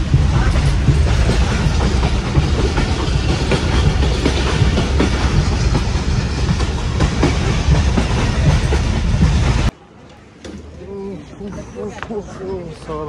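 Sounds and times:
wheels clicking and knocking: 0.0s - 9.7s
train rumble and rattle: 0.0s - 9.8s.

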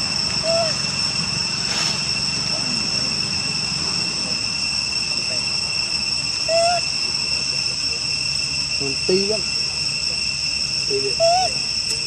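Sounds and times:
insect chorus: 0.0s - 12.0s
rising and falling calls: 0.4s - 0.9s, 6.4s - 6.9s, 10.9s - 11.7s.

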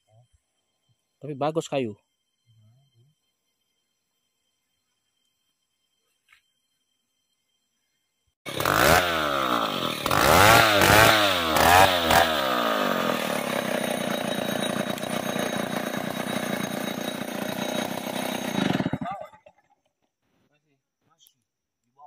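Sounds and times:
chainsaw revving and cutting log: 8.5s - 19.2s.

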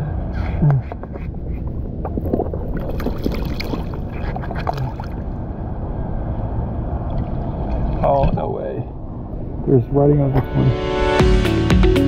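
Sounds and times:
water splashing and dripping: 1.4s - 5.4s.

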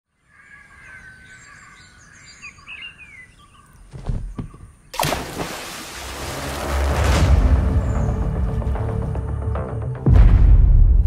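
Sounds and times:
birds chirping: 0.1s - 5.2s
low thuds: 3.8s - 5.4s
water splashing into puddle: 4.9s - 7.7s.

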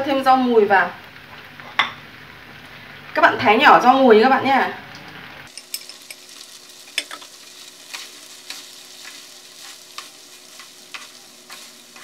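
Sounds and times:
food sizzling in frying pan: 0.0s - 12.0s.

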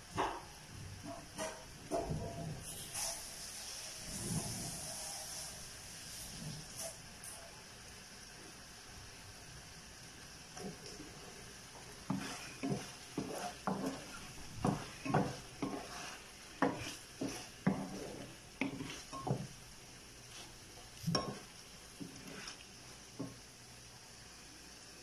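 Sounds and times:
wooden spatula scraping pan: 11.8s - 19.6s, 20.2s - 23.4s.

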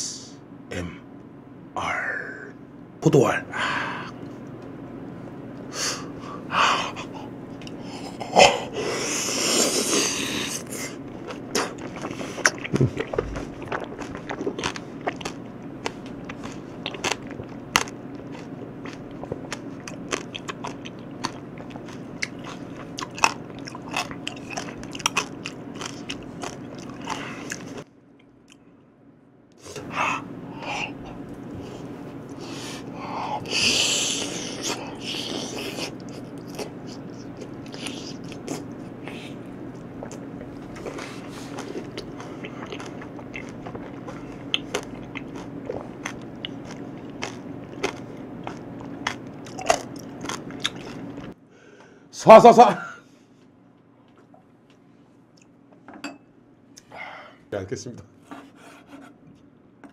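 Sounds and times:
grapes being chewed: 9.2s - 28.7s, 30.6s - 51.4s.

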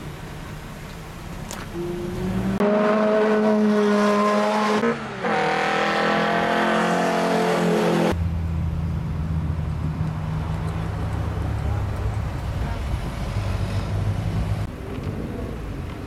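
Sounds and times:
car engine idling: 0.0s - 2.1s
high-revving car passing: 1.7s - 8.6s.

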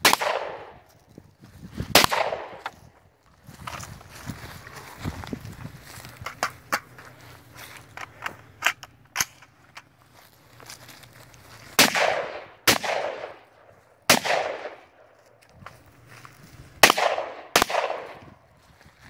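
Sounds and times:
echoing gunshots: 0.0s - 0.8s, 1.9s - 2.8s, 11.8s - 15.1s, 16.8s - 18.4s.

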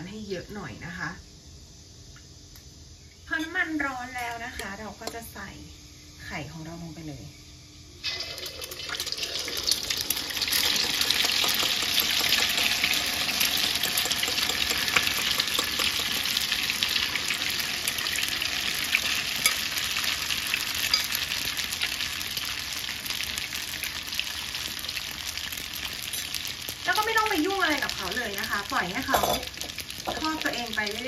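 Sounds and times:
egg sizzling in hot oil: 8.0s - 31.0s.

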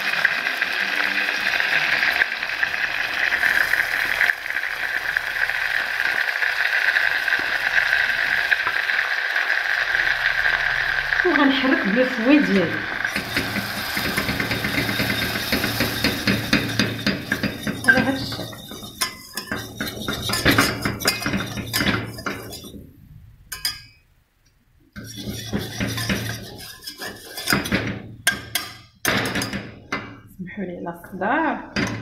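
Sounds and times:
whisk scraping against metal pot: 12.9s - 22.9s, 25.0s - 29.6s.

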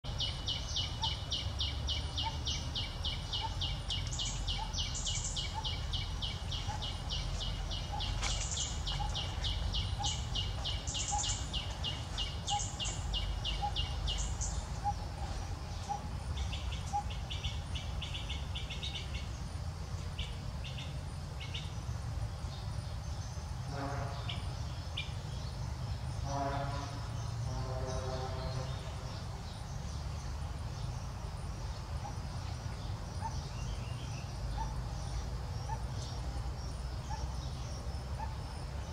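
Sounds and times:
steady low rumble: 0.1s - 26.3s.

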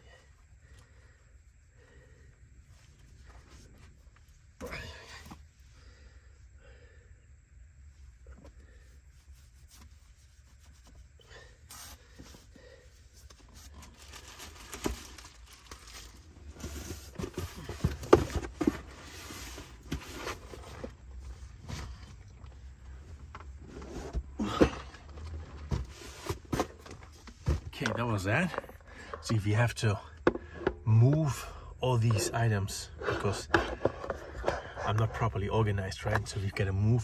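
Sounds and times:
cardboard boxes scraping: 16.4s - 22.2s, 23.5s - 28.8s.

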